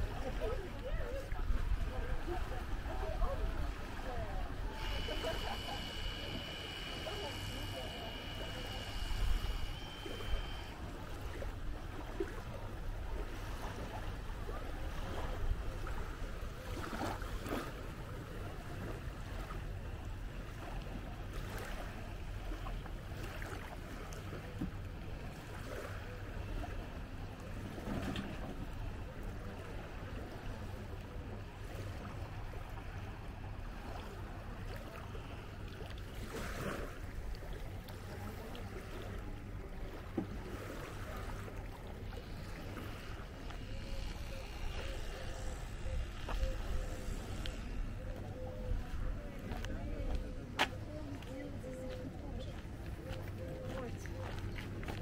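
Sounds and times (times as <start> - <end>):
small waves washing on shore: 0.0 - 55.0.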